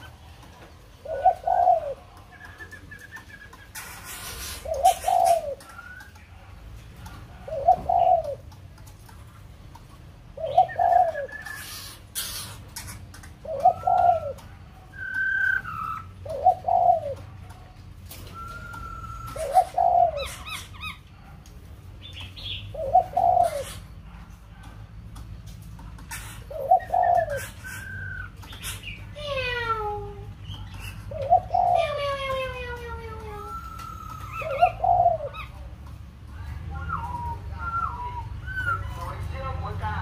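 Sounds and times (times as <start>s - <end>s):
dove cooing: 0.0s - 8.9s, 10.2s - 21.4s, 22.0s - 35.8s
high whistled bird notes: 18.2s - 20.7s, 36.8s - 39.2s.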